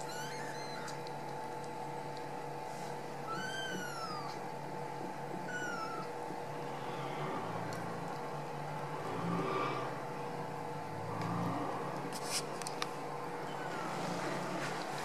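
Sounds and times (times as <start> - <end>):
kittens mewing: 0.0 - 1.1, 3.2 - 4.4, 5.3 - 6.2
steady background hum: 0.0 - 15.0.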